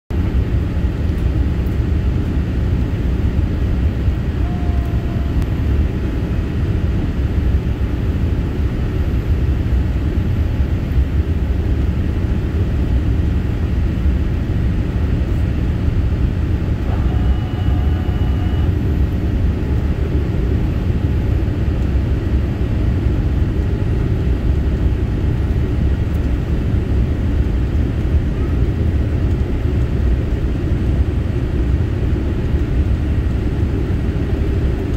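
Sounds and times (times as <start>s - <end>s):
jet engine rumble: 0.1s - 34.9s
faint tone: 4.3s - 6.1s, 16.8s - 18.8s.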